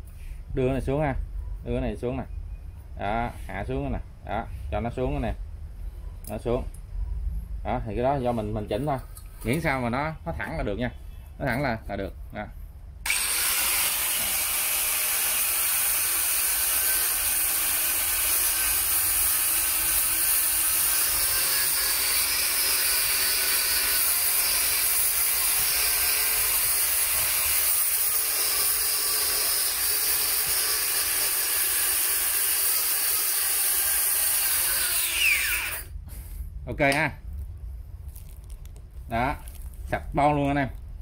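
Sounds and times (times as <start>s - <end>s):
angle grinder grinding grout: 13.1s - 35.9s.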